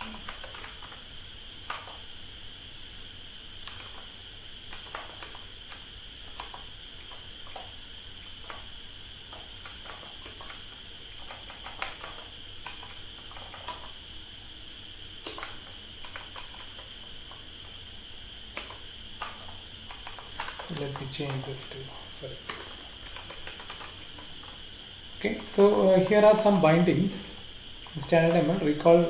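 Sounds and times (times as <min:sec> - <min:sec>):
keyboard keys clicking: 0:00.0 - 0:01.0, 0:03.6 - 0:04.0, 0:04.7 - 0:07.7, 0:09.3 - 0:13.9, 0:15.2 - 0:17.4, 0:18.5 - 0:24.6.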